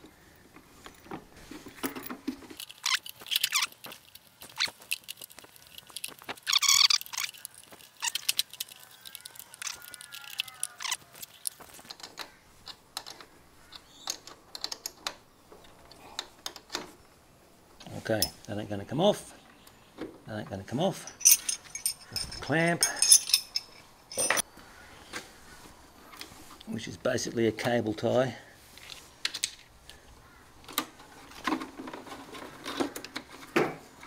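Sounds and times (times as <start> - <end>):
tools clicking and knocking: 1.8 - 16.9, 21.1 - 24.4
metallic rattle: 21.0 - 24.4.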